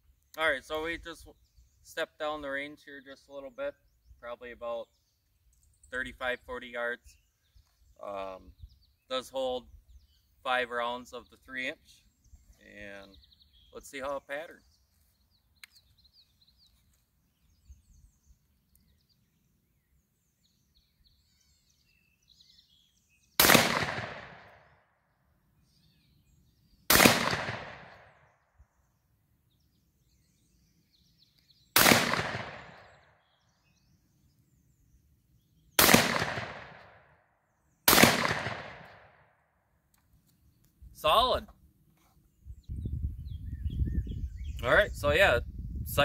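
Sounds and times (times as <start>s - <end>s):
faint bird chirps: 0.0s - 23.4s, 40.1s - 45.8s
shotgun shots: 23.4s - 24.6s, 26.9s - 28.2s, 31.8s - 33.0s, 35.8s - 37.0s, 37.9s - 39.2s.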